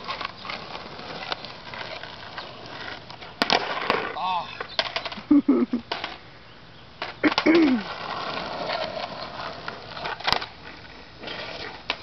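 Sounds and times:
skateboard clacking on pavement: 0.0 - 6.2, 7.0 - 12.0
skateboard wheels rolling on asphalt: 0.0 - 12.0.

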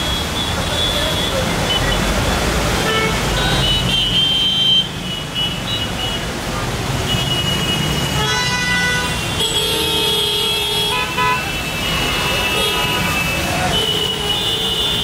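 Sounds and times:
rumble of traffic engines: 0.0 - 15.0
car horns honking: 7.0 - 15.0.

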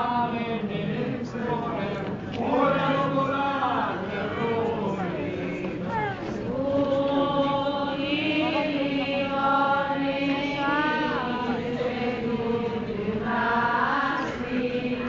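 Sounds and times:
voices chanting a litany: 0.0 - 15.0.

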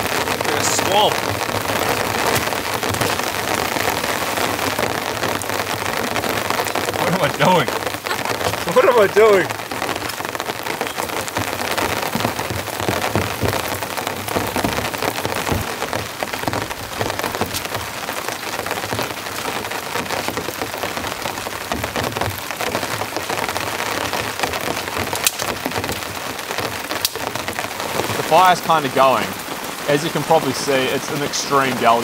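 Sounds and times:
raindrops ticking: 0.0 - 32.0
torrential rain hiss: 0.0 - 32.0.

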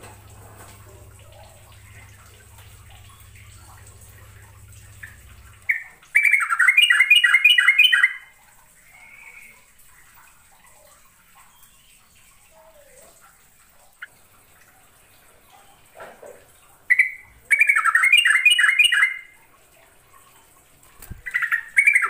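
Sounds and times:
bird bubbling song: 0.0 - 14.2, 15.0 - 22.0
faint bird calls: 0.6 - 9.7.

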